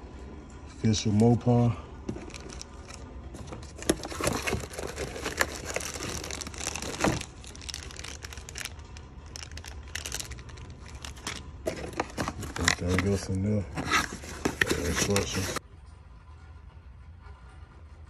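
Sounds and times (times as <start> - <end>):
plastic bags crinkling: 2.1 - 15.6.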